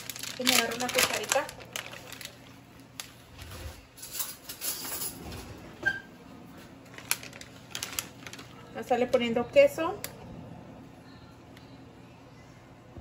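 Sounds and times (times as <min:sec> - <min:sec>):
plastic bag rustling: 0:00.0 - 0:04.0, 0:06.5 - 0:09.2.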